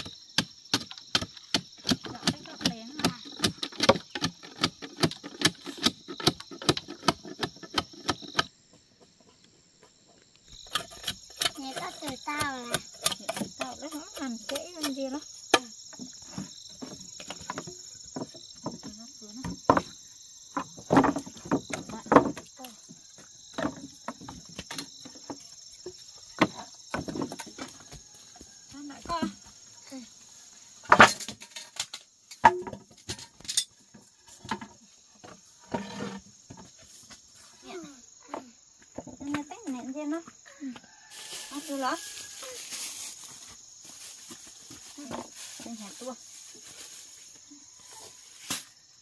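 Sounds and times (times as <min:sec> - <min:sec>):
high-pitched insect chorus: 0:00.0 - 0:49.0.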